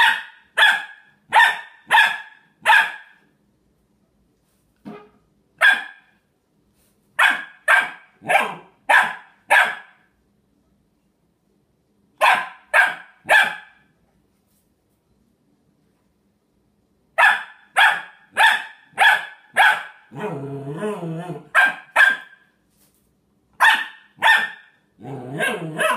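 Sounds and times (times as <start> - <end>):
puppy barking: 0.0 - 3.3, 4.9 - 6.2, 7.2 - 10.1, 12.2 - 13.9, 17.2 - 20.4, 21.4 - 22.5, 23.6 - 25.9.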